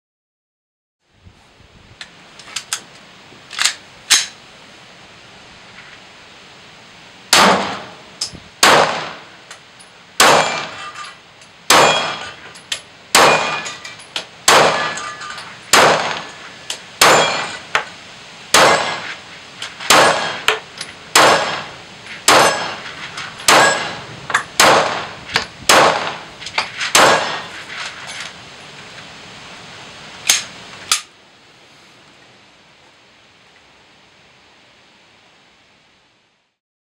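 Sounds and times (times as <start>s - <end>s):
pistol shots: 7.3s - 7.9s, 8.6s - 9.3s, 10.2s - 10.8s, 11.7s - 12.3s, 13.1s - 13.7s, 14.5s - 15.0s, 15.7s - 16.3s, 17.0s - 17.6s, 18.5s - 19.1s, 19.9s - 22.8s, 23.5s - 24.0s, 24.6s - 26.2s, 26.9s - 27.5s
steel target ringing: 10.2s - 12.4s, 13.1s - 16.4s, 17.0s - 17.7s, 22.3s - 22.8s, 23.4s - 25.1s.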